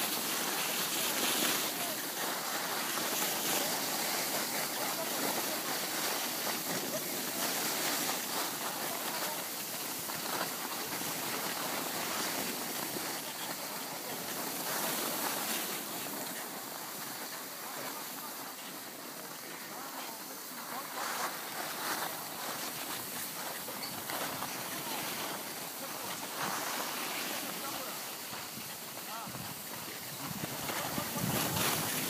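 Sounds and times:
skis hissing over snow: 0:00.0 - 0:32.0.

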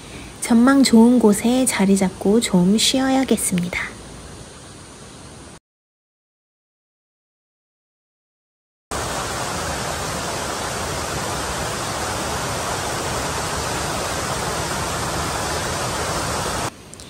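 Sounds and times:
fast-running mountain water rushing: 0:08.9 - 0:16.7.

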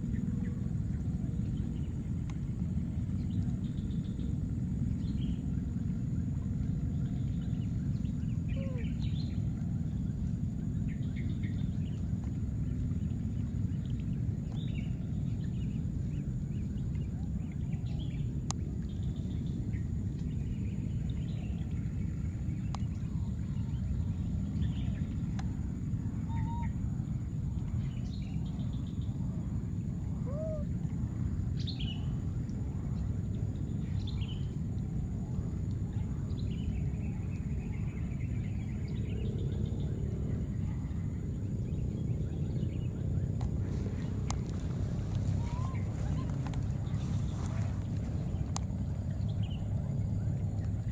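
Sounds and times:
continuous high-pitched drone: 0:00.0 - 0:50.9
steady low rumble: 0:00.0 - 0:50.9
birds chirping and whistling: 0:43.8 - 0:48.4.

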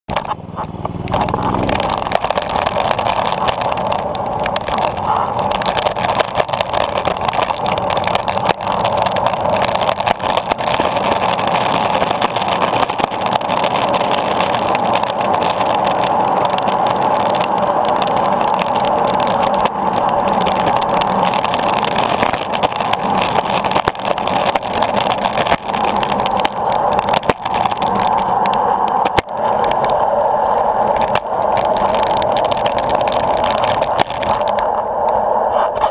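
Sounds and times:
skateboard wheels rolling on asphalt: 0:00.1 - 0:35.9
small engine running: 0:00.2 - 0:28.2.

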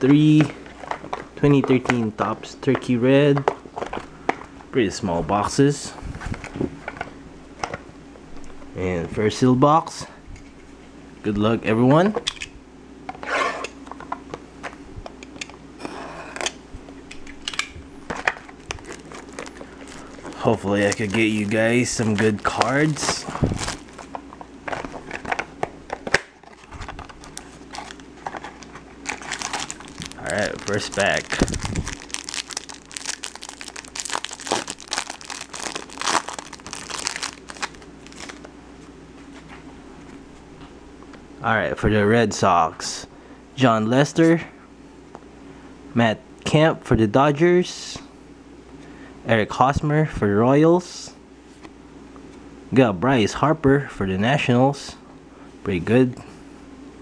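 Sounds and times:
cellophane crinkling and tearing: 0:18.4 - 0:38.5.

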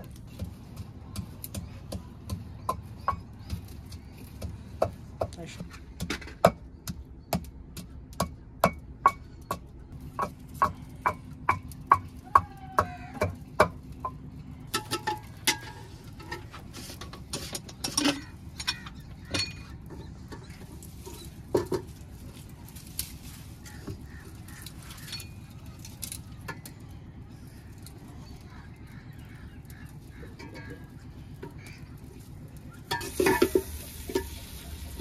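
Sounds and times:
kitchen utensils clinking: 0:32.9 - 0:35.0.

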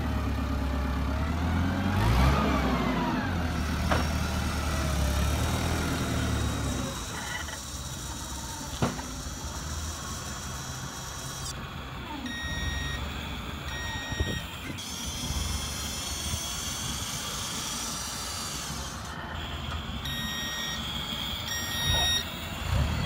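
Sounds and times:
motor whine: 0:01.2 - 0:23.0
reversing beeper: 0:12.2 - 0:15.7, 0:19.2 - 0:23.0.

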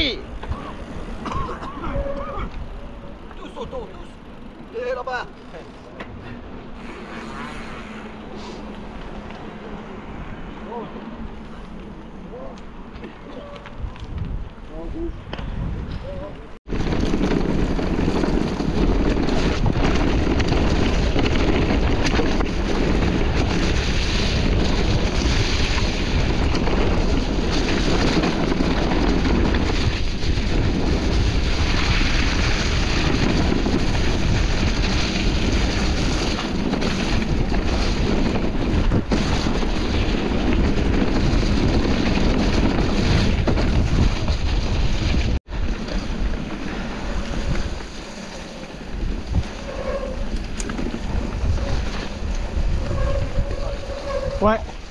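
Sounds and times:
bike ride noise: 0:00.0 - 0:54.9
wind buffeting microphone: 0:13.7 - 0:48.0, 0:48.8 - 0:54.9.

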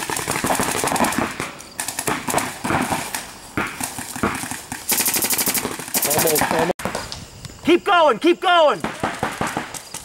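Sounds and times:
balls striking inflatable bunkers: 0:00.0 - 0:04.9
paintball markers firing: 0:00.0 - 0:07.1, 0:08.8 - 0:10.0.

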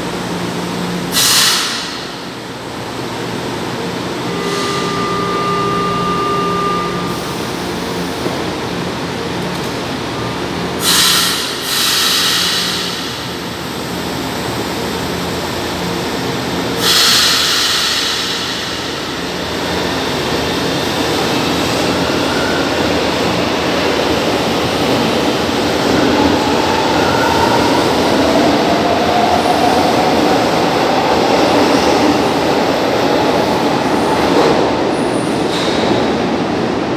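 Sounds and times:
traction motor whine: 0:04.3 - 0:07.4
train wheels on rails: 0:07.1 - 0:36.9.

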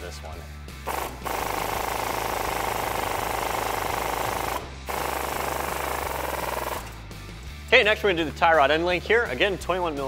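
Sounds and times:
impact gun hammering: 0:00.9 - 0:07.0.

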